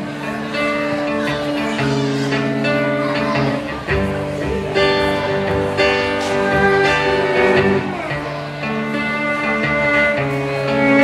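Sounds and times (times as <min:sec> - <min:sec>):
acoustic guitar: 0:00.0 - 0:11.0
cello sustained notes: 0:00.0 - 0:11.0.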